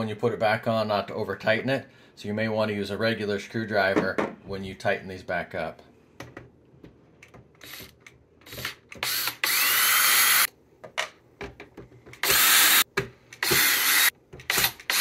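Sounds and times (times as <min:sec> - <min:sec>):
cordless drill whirring: 0:07.6 - 0:10.5, 0:12.2 - 0:12.8, 0:13.4 - 0:15.0.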